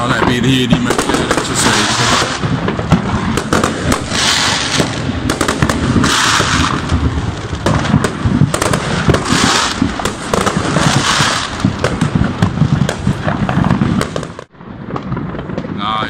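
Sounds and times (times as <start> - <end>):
firecracker bangs: 0.0 - 16.0
fireworks hissing crackle: 0.0 - 16.0.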